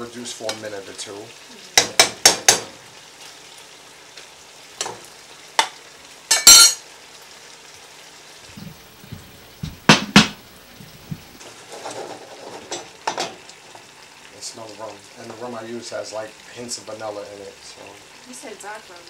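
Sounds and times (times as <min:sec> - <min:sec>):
meat sizzling in a frying pan: 0:00.0 - 0:19.0
metal spoon scraping a pan: 0:06.3 - 0:06.8
sharp knocks: 0:08.6 - 0:11.4.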